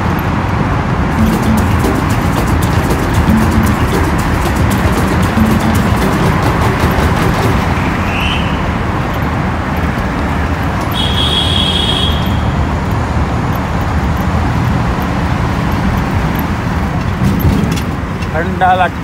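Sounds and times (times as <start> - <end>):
traffic noise in tunnel: 0.0 - 3.4, 4.2 - 19.0
high-pitched tone: 1.2 - 8.0.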